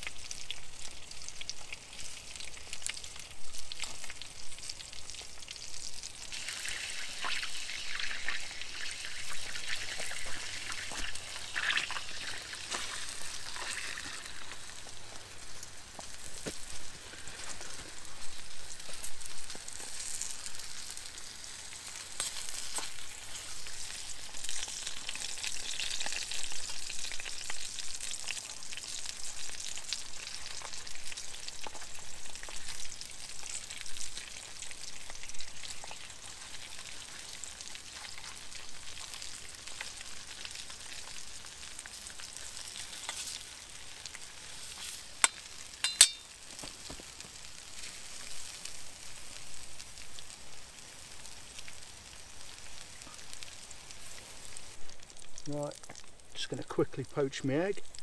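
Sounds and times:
potatoes sizzling in a pan: 0.0 - 58.0
metal spatula scraping: 44.6 - 46.3.

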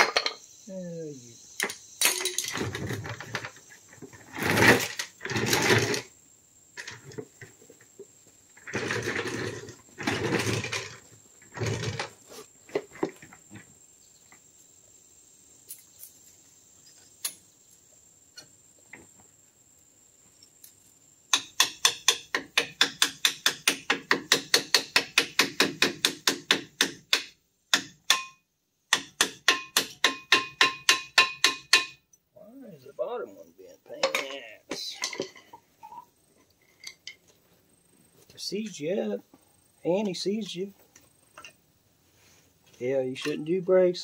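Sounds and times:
rough scraping on brake: 8.6 - 13.2.

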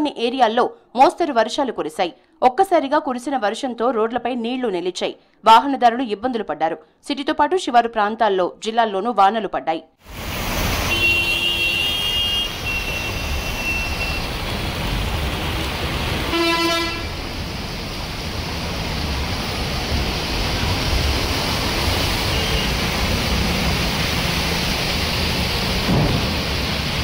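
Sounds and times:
traffic driving through water: 10.0 - 27.0
vehicle horn: 10.8 - 14.2, 16.3 - 17.2, 22.3 - 22.8.

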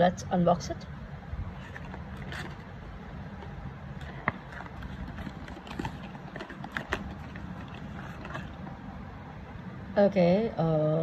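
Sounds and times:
low background hum: 0.0 - 11.0
cardboard box being opened: 1.5 - 2.7, 3.4 - 8.8.

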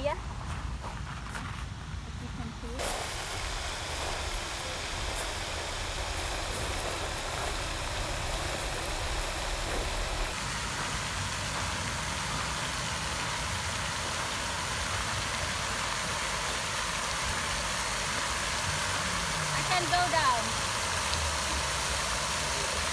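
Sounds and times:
fountain jets splashing: 2.1 - 22.9.

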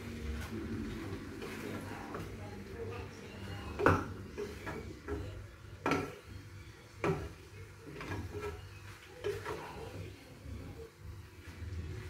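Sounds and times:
spatula stirring in frying pan: 0.0 - 12.0
spatula clacking against pan: 3.8 - 6.3.

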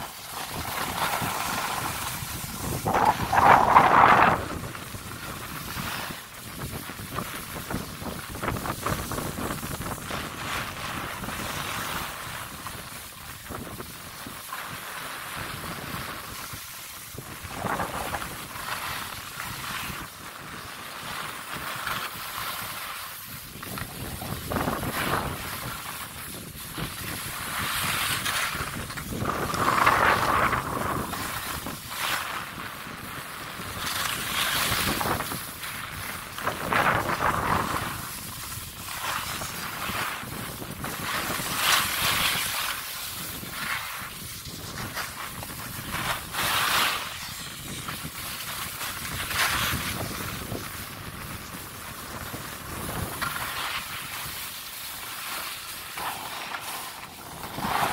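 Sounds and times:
skis scraping over snow: 0.0 - 57.9
wind buffeting microphone: 0.4 - 11.5, 15.6 - 20.6, 23.3 - 31.9, 32.5 - 42.4, 56.0 - 57.9.

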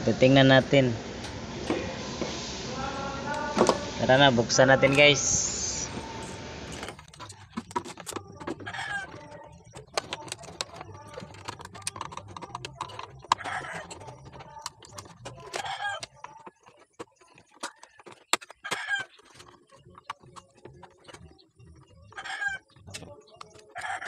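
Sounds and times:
screwdriver and metal parts clicking: 6.7 - 24.0
hen clucking: 7.2 - 24.0.

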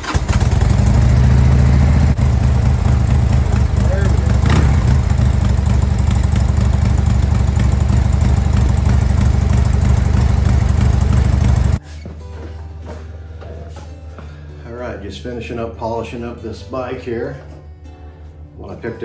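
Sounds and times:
motorcycle engine idling: 0.0 - 11.8.

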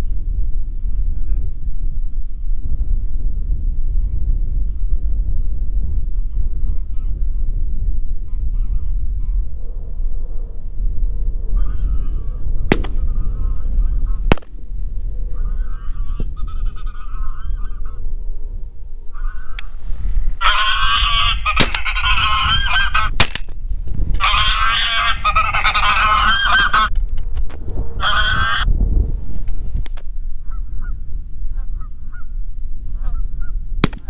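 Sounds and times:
geese honking: 11.6 - 12.3, 15.3 - 18.0, 19.1 - 19.7, 20.4 - 23.2, 24.2 - 26.9, 28.0 - 28.6.

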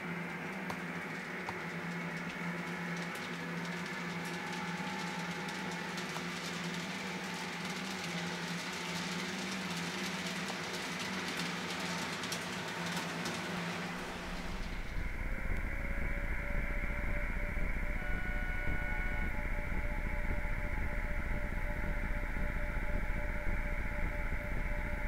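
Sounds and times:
wheels clicking over rail joints: 0.6 - 15.7
model train motor hum: 0.9 - 25.0
low rumble: 13.9 - 25.0
faint short tone: 14.3 - 21.8.

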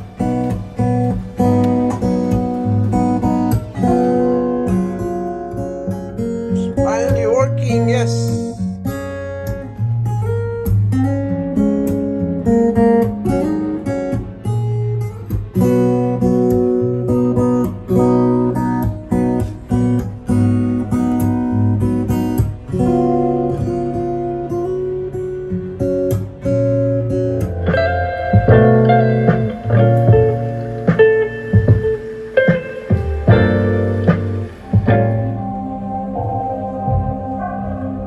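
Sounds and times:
acoustic guitar melody: 0.0 - 38.0.

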